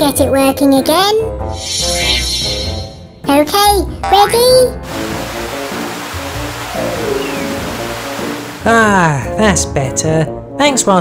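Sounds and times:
light background music: 0:00.0 - 0:11.0
hose spraying water: 0:04.8 - 0:08.9.

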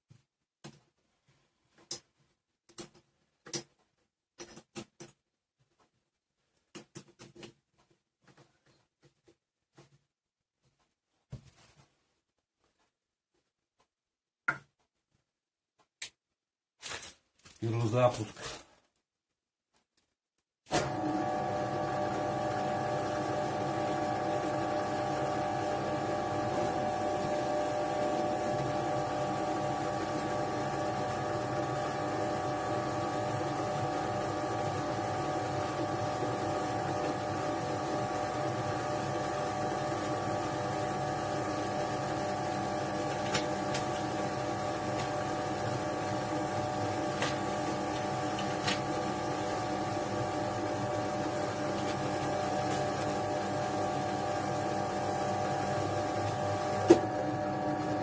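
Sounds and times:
drill press motor humming: 0:20.8 - 0:58.0.

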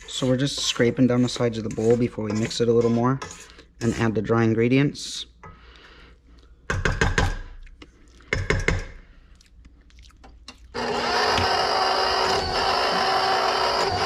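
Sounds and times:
wooden spoon scraping steel bowl: 0:00.0 - 0:04.6
stand mixer motor running: 0:10.8 - 0:14.0.

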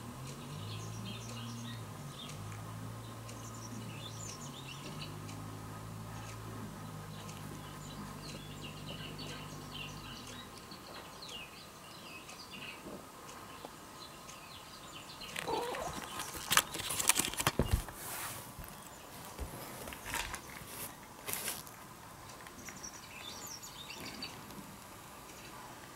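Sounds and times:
cat moving across mats: 0:15.4 - 0:21.8.

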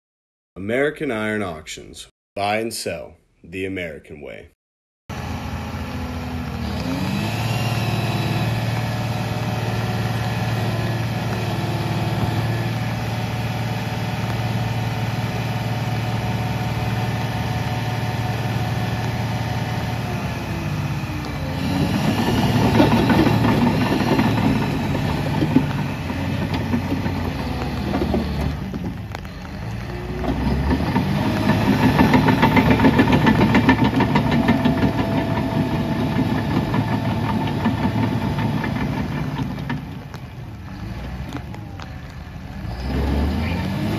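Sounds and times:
diesel engine running: 0:05.1 - 0:43.9
steel tracks clanking on gravel: 0:21.1 - 0:43.5.

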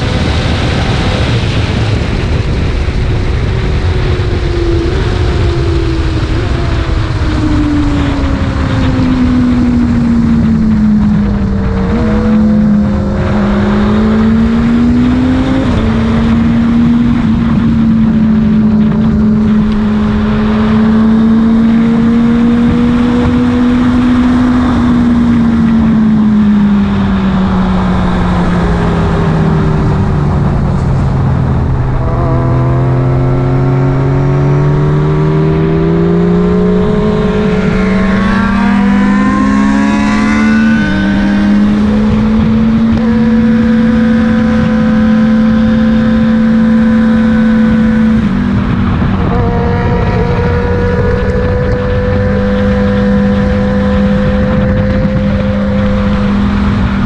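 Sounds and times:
motorbike engine at speed: 0:00.0 - 0:57.0
wind rush: 0:00.0 - 0:57.0.

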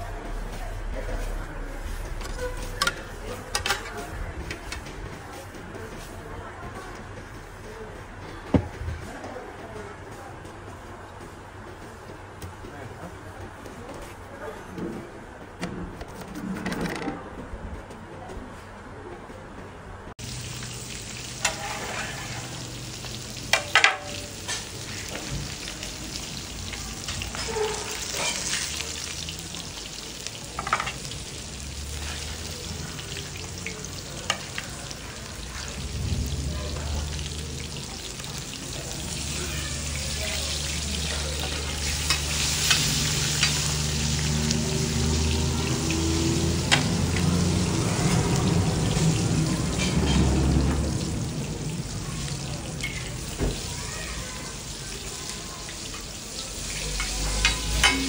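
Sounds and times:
fish sizzling in oil: 0:20.2 - 0:58.0.

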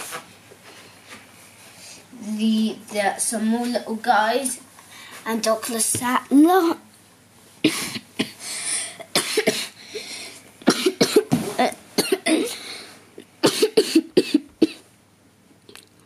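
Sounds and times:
person coughing: 0:07.6 - 0:09.8, 0:10.7 - 0:12.6, 0:13.4 - 0:14.8.

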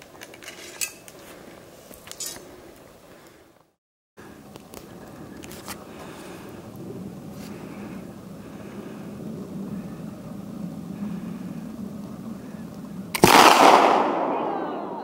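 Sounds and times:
light clinks and clicks: 0:00.0 - 0:02.5
low steady background noise: 0:00.0 - 0:15.0.

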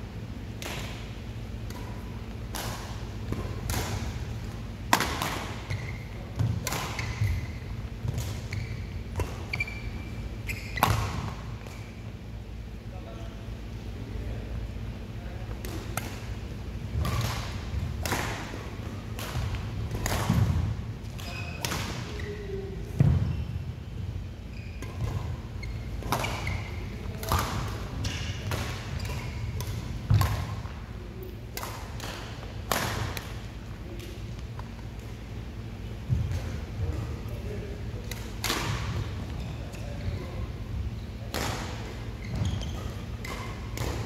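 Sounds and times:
racket hitting shuttlecock: 0:00.6 - 0:09.7, 0:10.8 - 0:11.8, 0:17.0 - 0:22.1, 0:26.0 - 0:26.6, 0:27.2 - 0:30.7, 0:31.5 - 0:33.4, 0:38.1 - 0:39.1, 0:41.3 - 0:44.0.

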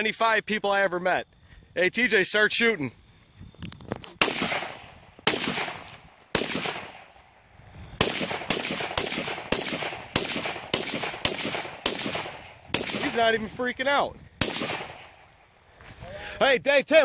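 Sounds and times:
rifle shots: 0:04.2 - 0:07.2, 0:08.0 - 0:13.4, 0:14.4 - 0:15.2.

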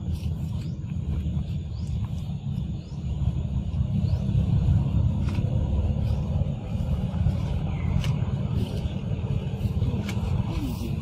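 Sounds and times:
loud low rumble: 0:00.0 - 0:11.0.

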